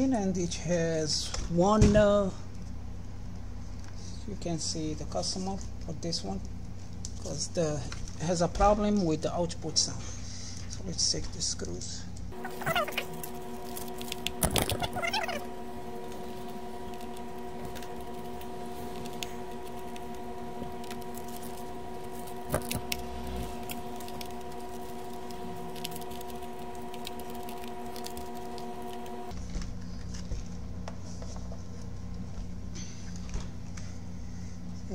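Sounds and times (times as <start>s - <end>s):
held chord tones: 12.4s - 29.3s.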